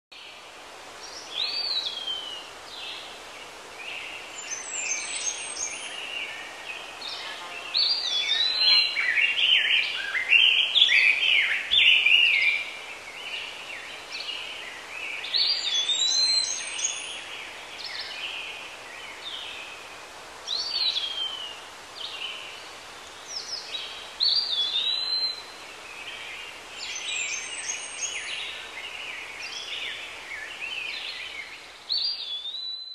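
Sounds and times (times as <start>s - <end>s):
songbirds singing: 0.2s - 32.9s.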